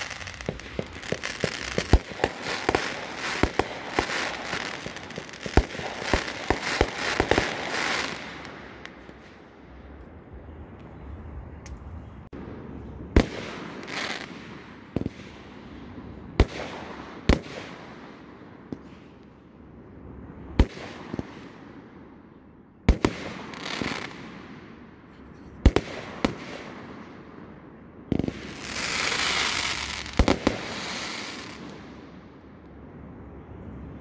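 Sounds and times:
firework crackling: 0.0s - 9.2s, 28.2s - 31.8s
firework bangs: 0.0s - 9.4s, 28.1s - 32.0s.

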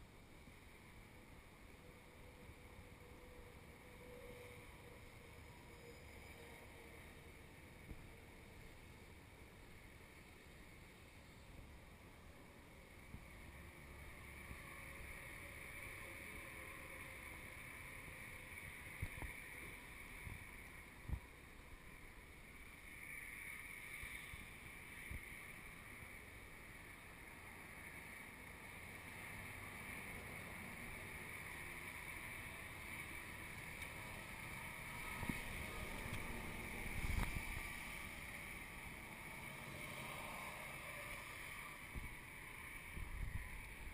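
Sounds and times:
steady high hiss: 0.0s - 43.9s
low wind rumble: 10.8s - 43.9s.

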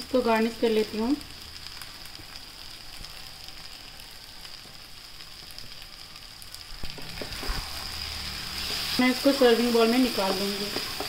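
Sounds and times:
sauce sizzling in a pan: 0.0s - 11.0s.

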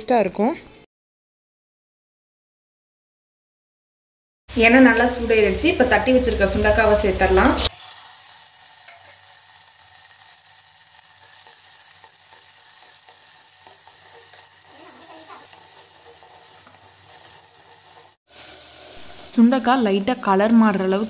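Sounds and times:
berries sizzling in hot oil: 4.5s - 21.0s.

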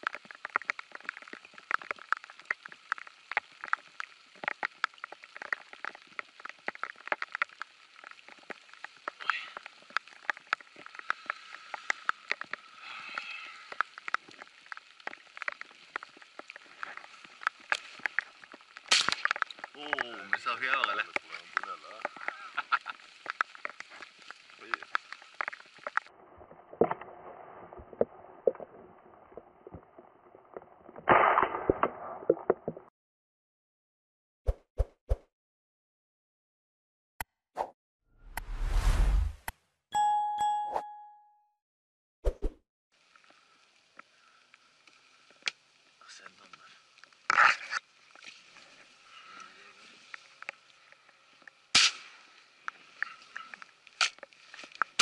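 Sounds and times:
faint clicks and ticks: 0.0s - 26.1s, 50.1s - 51.6s.

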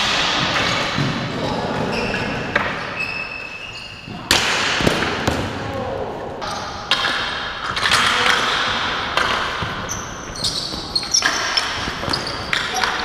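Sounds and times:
ball striking concrete floor: 4.2s - 5.6s.

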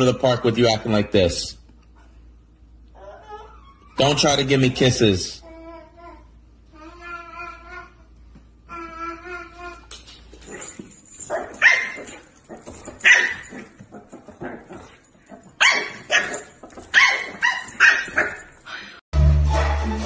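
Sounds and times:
puppy yapping: 11.3s - 18.5s.

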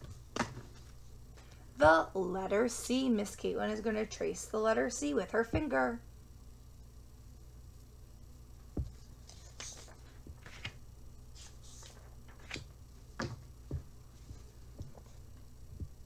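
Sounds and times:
paper pages rustling: 8.9s - 13.3s.

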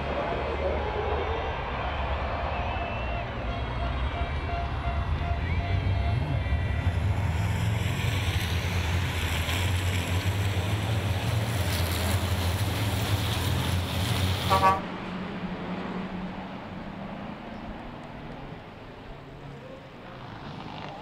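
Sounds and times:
truck engines droning: 0.0s - 21.0s
horn toot: 3.2s - 6.6s, 14.4s - 14.9s.

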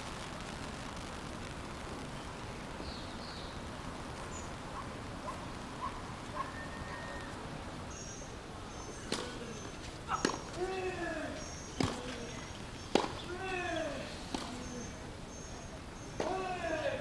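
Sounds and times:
crowd murmur: 8.2s - 17.0s
sharp crack: 9.0s - 15.0s, 16.2s - 17.0s.

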